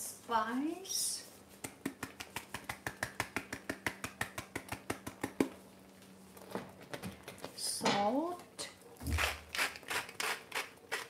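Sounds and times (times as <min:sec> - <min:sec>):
spice shaker clicking: 0:01.6 - 0:05.5.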